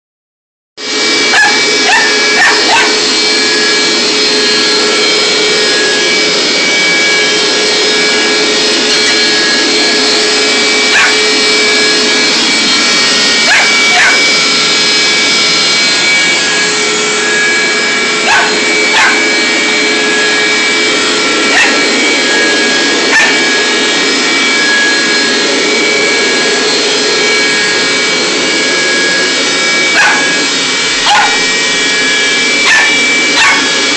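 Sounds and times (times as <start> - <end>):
carpet cleaner whining: 0.8 - 33.9
puppy barking and yipping: 1.2 - 3.2, 10.8 - 11.4, 13.2 - 14.4, 18.2 - 19.4, 21.4 - 22.0, 22.9 - 23.6, 29.9 - 31.6, 32.5 - 33.9.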